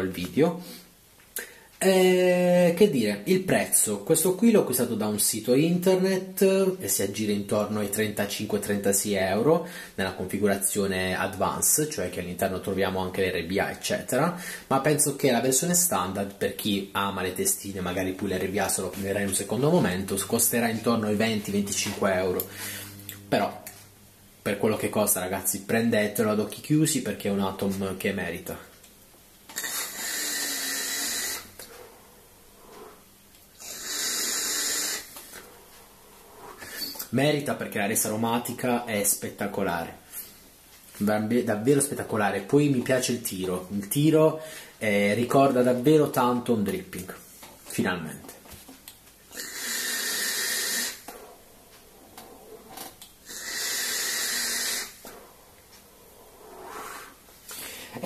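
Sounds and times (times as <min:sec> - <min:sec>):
airy hiss of air drawn through vape: 0:29.5 - 0:37.0, 0:49.3 - 0:51.4, 0:52.2 - 0:58.0.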